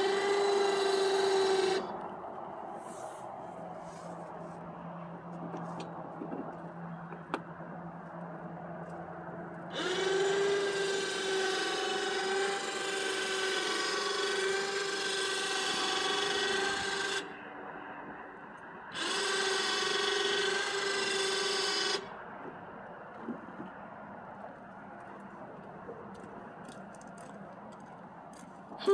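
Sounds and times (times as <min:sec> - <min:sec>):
electric winch motor whining: 0:00.0 - 0:03.1, 0:09.7 - 0:17.4, 0:18.7 - 0:22.2.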